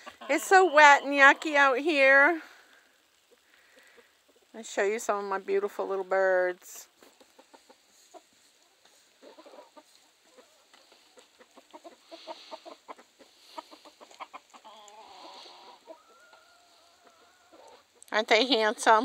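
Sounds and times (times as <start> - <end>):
chickens clucking softly: 6.9 - 18.1.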